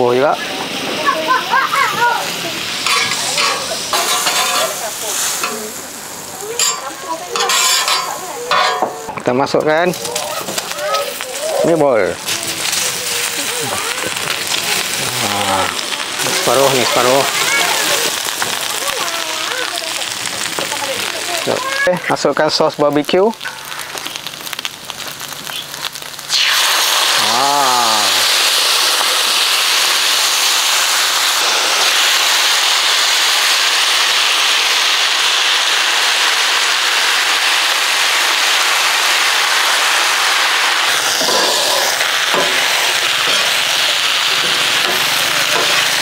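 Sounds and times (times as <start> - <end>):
sauce sizzling on hot griddle: 0.0 - 46.0
metal spatula scraping griddle: 2.8 - 5.9, 6.5 - 9.2, 40.9 - 46.0.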